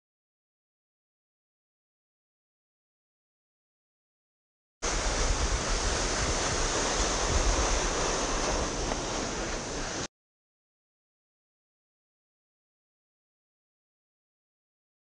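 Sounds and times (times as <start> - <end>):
sled sliding over ice: 4.8 - 10.1
wind on microphone: 4.8 - 10.1.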